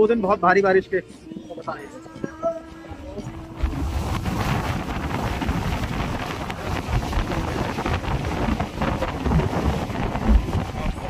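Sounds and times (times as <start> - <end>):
wind buffeting microphone: 3.0 - 11.0.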